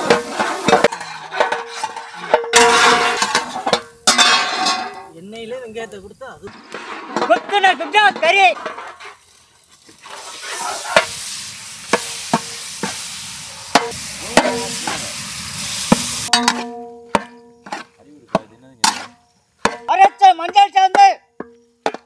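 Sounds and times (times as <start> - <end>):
meat sizzling in hot oil: 0.0 - 1.0, 9.0 - 16.4
metal ladle knocking on pot: 15.9 - 22.0.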